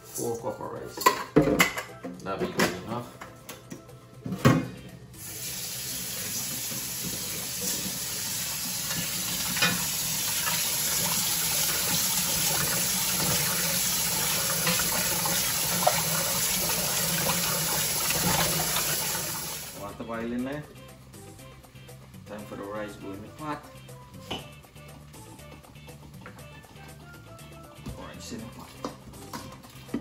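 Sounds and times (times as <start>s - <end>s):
faucet running into a bowl: 5.2s - 19.8s.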